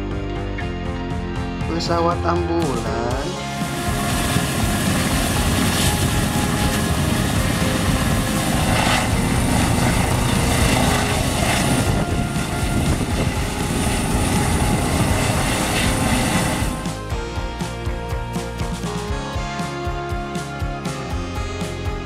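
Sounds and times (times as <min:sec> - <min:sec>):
helicopter rotor chop: 0:03.3 - 0:17.3
helicopter turbine: 0:03.3 - 0:17.8.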